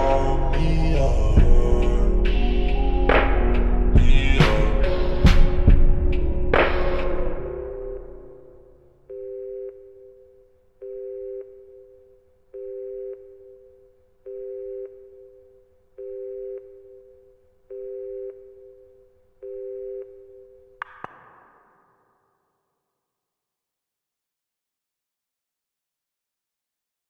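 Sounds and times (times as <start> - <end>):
song music: 0.0 - 9.0.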